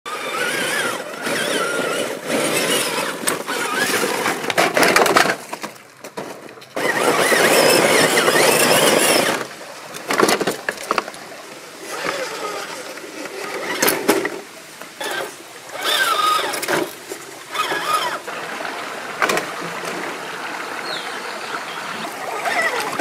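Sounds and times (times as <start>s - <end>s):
electric motor whining: 0.1s - 4.3s, 6.8s - 9.5s, 15.0s - 16.8s
tyres crunching on dirt and rock: 0.4s - 11.2s.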